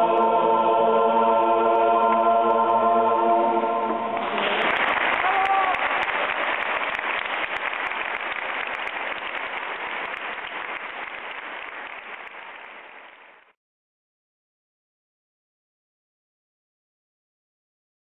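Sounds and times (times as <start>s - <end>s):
audience applauding: 4.2s - 13.5s.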